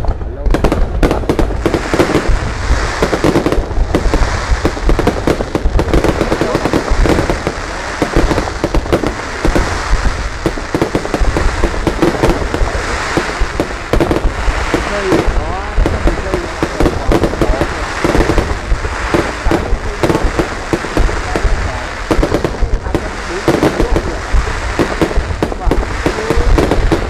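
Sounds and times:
fireworks bangs and crackles: 0.0 - 27.0.

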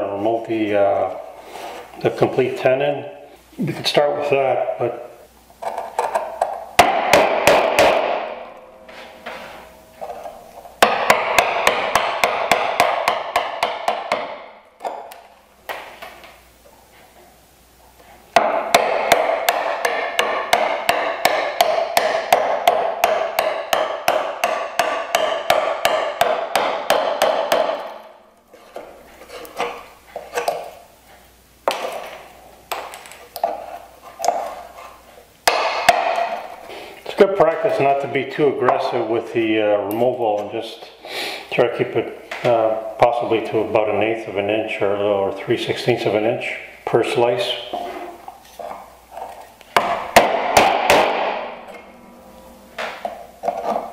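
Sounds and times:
mallet tapping a chisel: 18.4 - 28.0.

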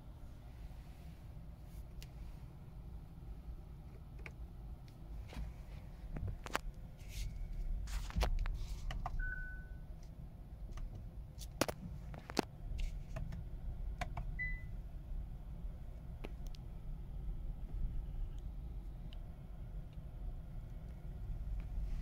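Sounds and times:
low car cabin rumble: 0.0 - 22.0
dashboard warning beeps: 9.2 - 9.9, 14.3 - 14.8.

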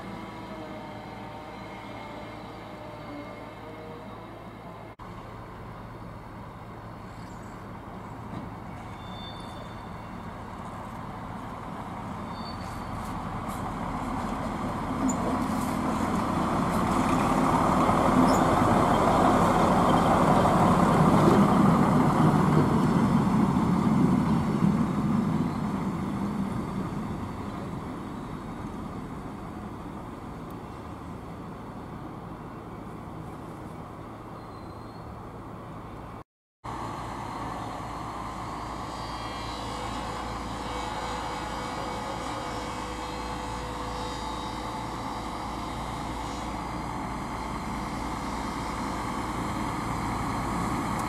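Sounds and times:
railway vehicle engine running: 0.0 - 51.0.

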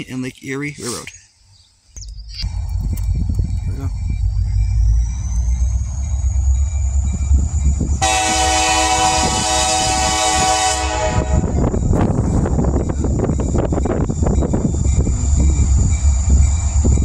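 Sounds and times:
train rumble: 2.0 - 17.0
locomotive horn blast: 8.0 - 11.8.

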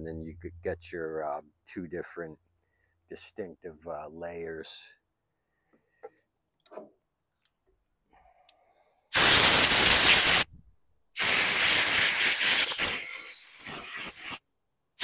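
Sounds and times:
pressurised spray hissing: 9.1 - 10.5, 11.2 - 14.4.

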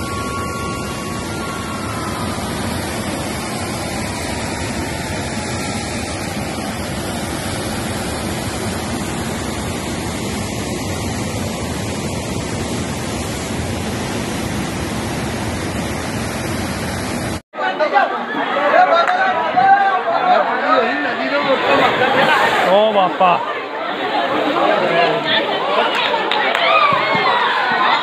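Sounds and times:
turbulent river water rushing: 0.0 - 17.4, 20.1 - 25.9.

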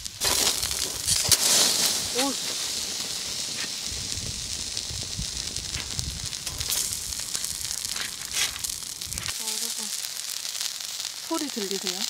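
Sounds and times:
chicken sizzling on grill: 0.0 - 12.0
fire crackling: 0.0 - 12.0.

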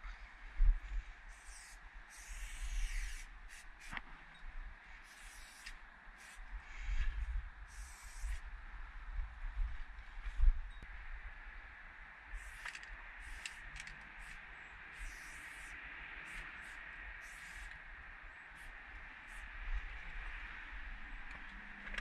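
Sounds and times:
wind and microphone handling: 0.0 - 2.0, 5.6 - 11.7, 18.6 - 22.0
spray can hissing: 1.3 - 4.0, 5.0 - 6.4, 7.7 - 8.4, 12.4 - 17.7.

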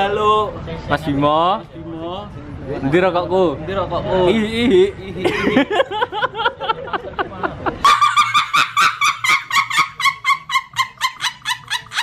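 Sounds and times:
woman shrieking laughter: 7.8 - 12.0.

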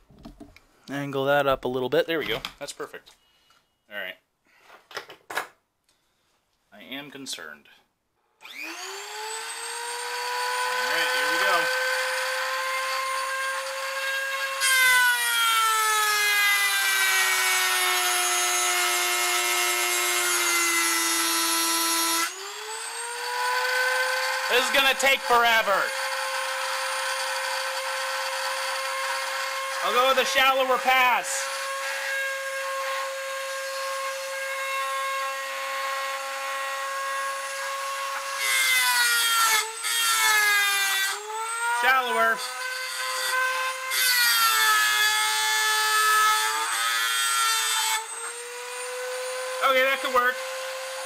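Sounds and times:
cut-off wheel grinding metal: 8.4 - 14.6, 22.2 - 33.3
rotary tool whining: 8.4 - 51.0.

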